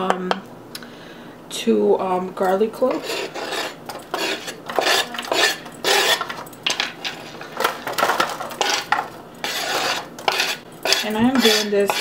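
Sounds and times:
knife scraping cutting board: 0:02.8 - 0:07.4, 0:08.6 - 0:12.0.

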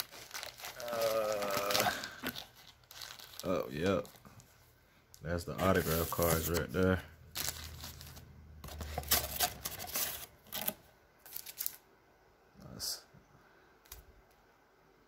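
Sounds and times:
foil card packs crinkling: 0:00.0 - 0:04.6, 0:05.4 - 0:11.8.

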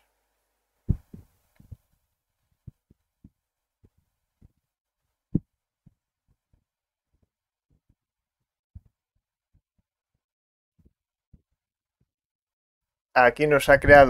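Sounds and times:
soft low thumps: 0:00.8 - 0:02.0, 0:02.6 - 0:04.6, 0:08.8 - 0:09.9.

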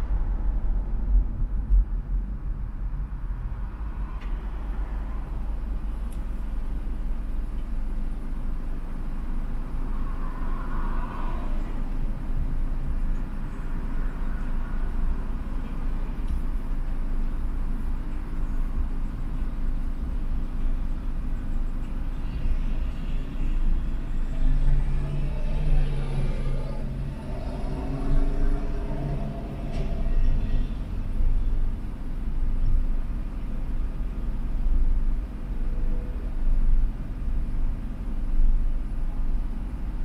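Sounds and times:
car engine idling: 0:03.3 - 0:10.8, 0:11.6 - 0:40.0
passing vehicle engine: 0:22.2 - 0:40.0.

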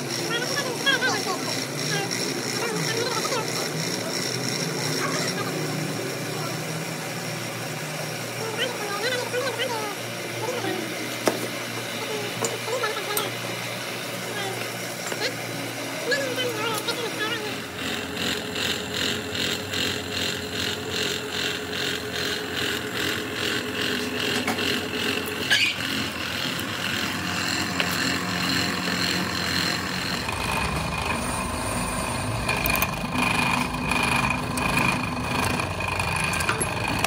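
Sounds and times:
machinery rhythmic pulse: 0:00.0 - 0:37.0.

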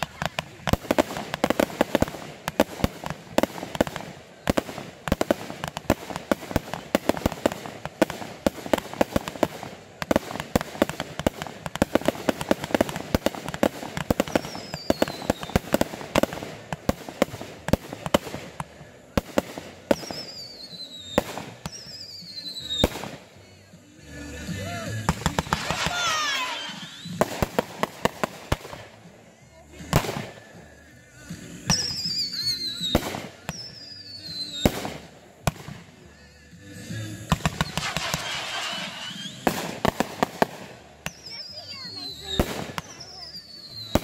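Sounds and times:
fireworks falling whistles: 0:00.0 - 0:28.9, 0:29.8 - 0:44.0
fireworks bangs and crackles: 0:00.0 - 0:44.0.

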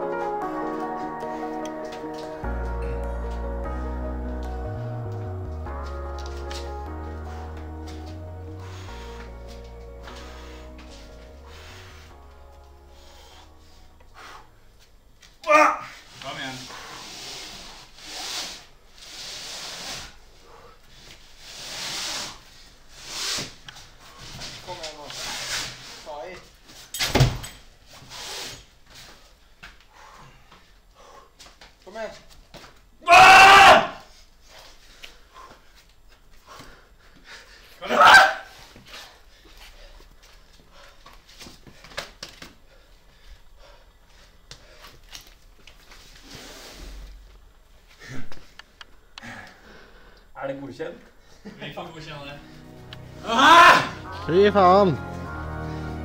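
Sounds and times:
person breathing hard: 0:08.4 - 0:14.8, 0:29.8 - 0:31.5, 0:34.0 - 0:37.8, 0:47.9 - 0:50.4.

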